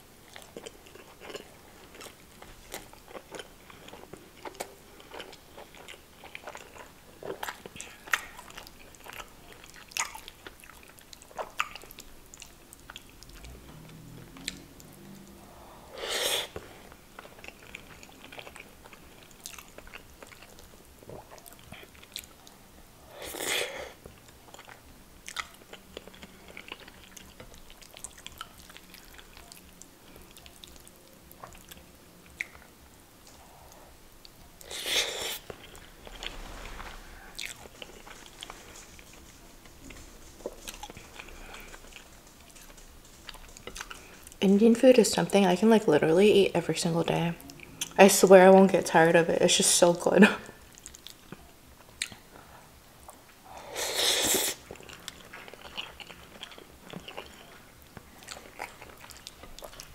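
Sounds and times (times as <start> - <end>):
chewing and wet mouth sounds: 0.2 - 15.7, 16.3 - 48.7, 50.4 - 59.9
short rushes of noise: 35.3 - 40.6.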